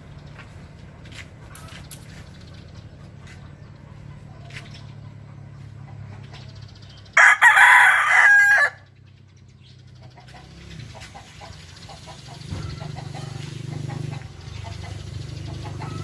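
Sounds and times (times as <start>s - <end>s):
rooster crowing: 7.2s - 8.9s.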